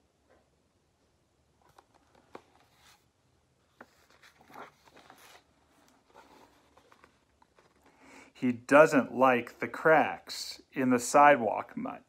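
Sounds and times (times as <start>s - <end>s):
page turning rustle: 1.6s - 3.1s, 3.7s - 8.0s.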